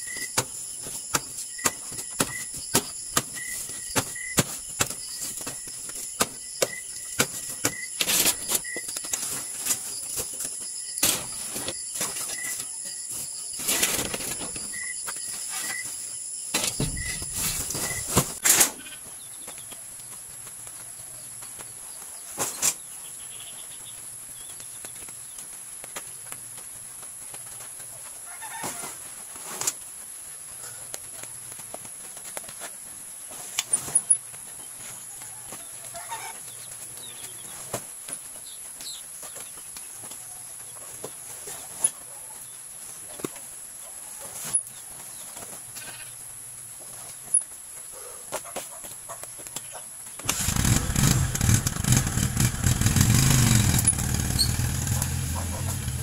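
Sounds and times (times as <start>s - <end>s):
scattered thumps: 16.6s - 18.4s.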